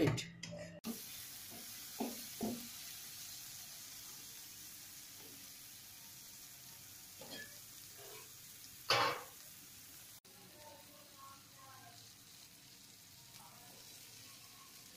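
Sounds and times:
vegetables sizzling in a frying pan: 0.8s - 14.9s.

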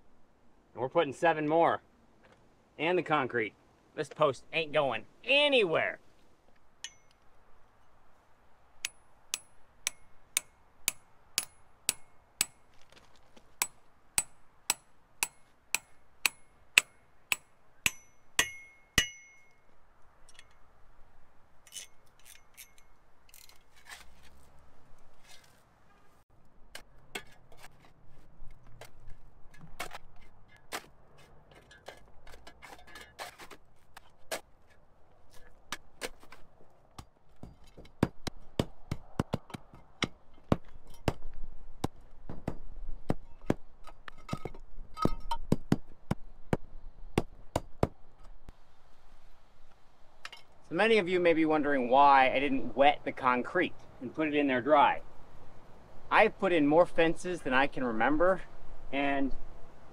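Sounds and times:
hammer striking metal: 8.8s - 12.7s, 13.6s - 19.6s
shovel digging in dirt: 21.7s - 24.5s, 25.1s - 25.6s, 26.6s - 36.5s
scraping: 21.7s - 36.5s.

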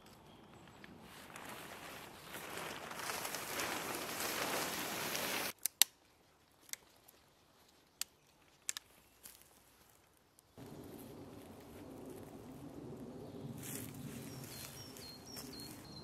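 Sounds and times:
footsteps through leaf litter: 1.0s - 5.6s, 10.6s - 16.0s.

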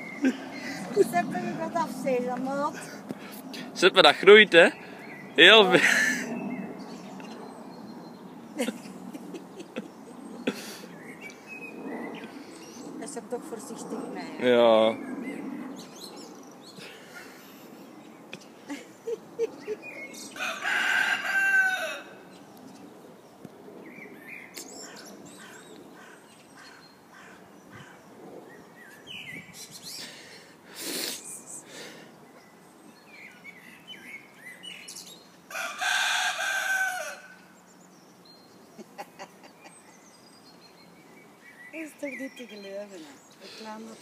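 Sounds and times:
rooster crowing: 20.3s - 22.3s, 35.5s - 37.6s.

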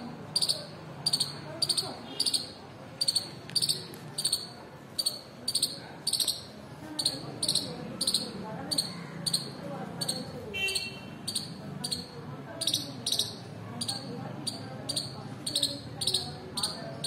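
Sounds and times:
squirrel chirping: 0.3s - 10.3s, 11.2s - 17.0s.

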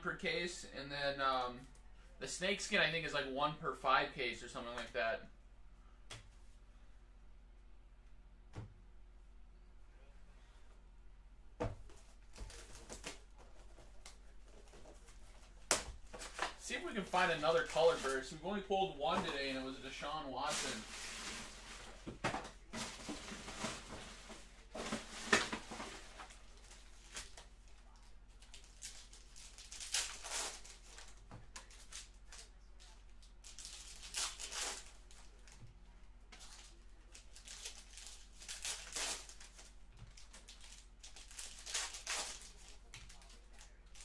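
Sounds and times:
card wrappers rustling and crinkling: 11.9s - 35.7s, 36.4s - 44.0s.

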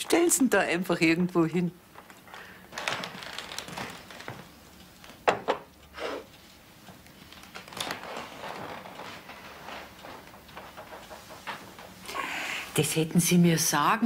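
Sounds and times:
rustling: 2.0s - 5.2s, 6.4s - 12.0s.

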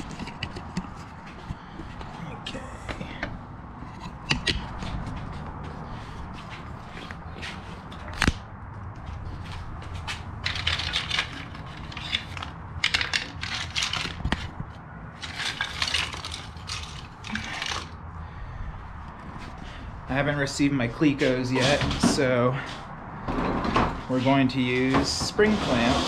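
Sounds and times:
clamps rattling: 10.4s - 14.6s, 15.2s - 18.0s.

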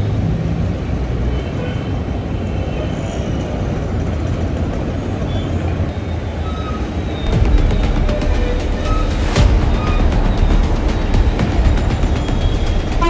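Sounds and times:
street traffic engine rumble: 0.0s - 13.0s.

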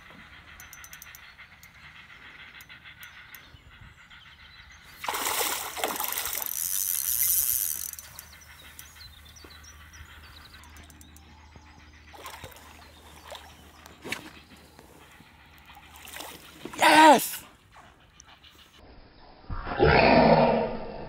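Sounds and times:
fish splashing in water: 5.0s - 6.5s.

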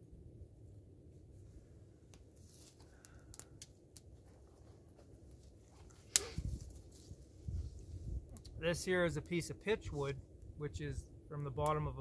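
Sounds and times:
kindling clicking and crackling: 2.9s - 4.1s.

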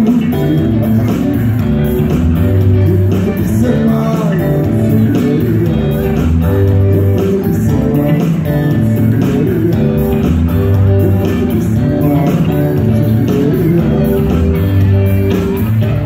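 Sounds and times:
electric guitar: 0.0s - 16.0s
person singing: 0.0s - 16.0s
steady drum beat: 0.0s - 16.0s.

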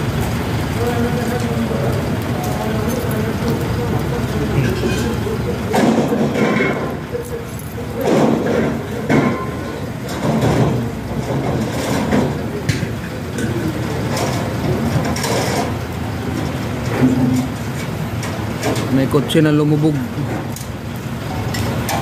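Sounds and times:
rumble of vehicles and engines: 0.0s - 22.0s
knocks and clatter: 4.6s - 19.0s.

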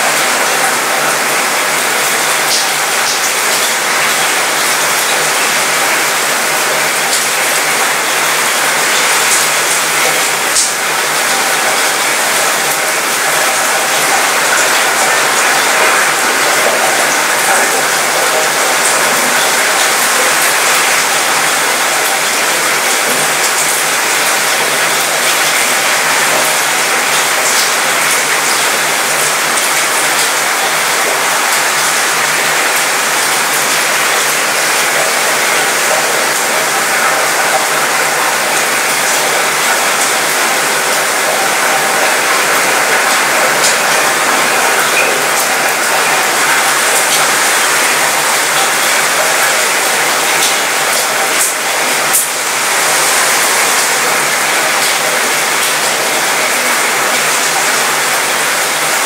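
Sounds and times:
rain rattling on metal: 0.0s - 59.0s.

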